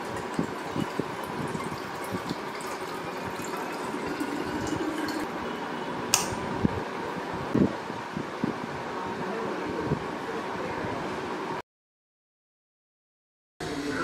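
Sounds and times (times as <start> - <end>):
water filling a bottle: 0.0 - 5.3
sharp click: 6.1 - 6.4.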